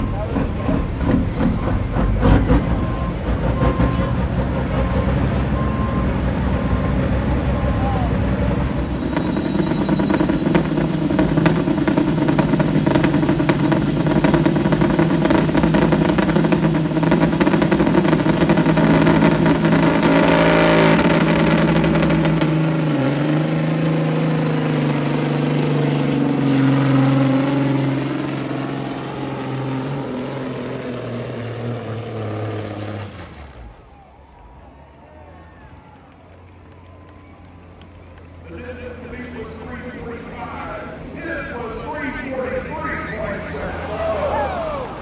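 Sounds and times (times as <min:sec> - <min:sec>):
diesel truck engine at full throttle: 0:00.0 - 0:45.0
rising whine: 0:00.0 - 0:45.0.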